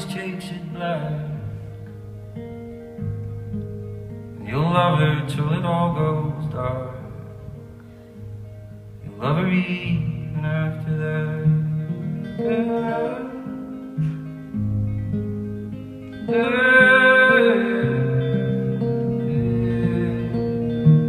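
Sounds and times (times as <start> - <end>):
plucked guitar: 0.0 - 21.0.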